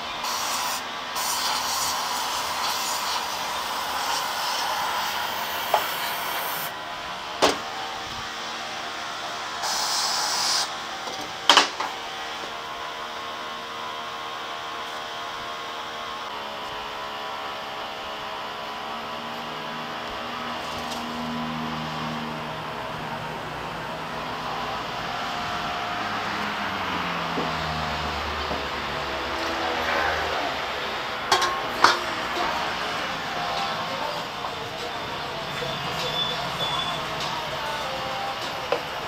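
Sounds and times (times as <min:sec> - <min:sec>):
aerosol can spraying: 0:00.2 - 0:03.4, 0:09.6 - 0:10.7.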